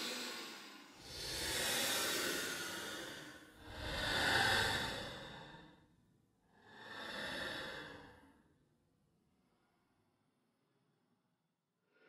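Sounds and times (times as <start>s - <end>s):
ghostly breathy sighs: 0.0s - 8.6s.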